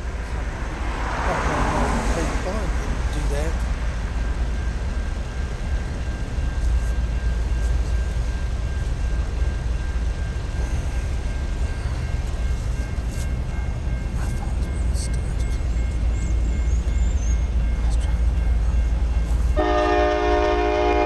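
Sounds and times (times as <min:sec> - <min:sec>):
crossing signal ringing: 0:00.0 - 0:21.0
distant freight train rumble: 0:00.0 - 0:21.0.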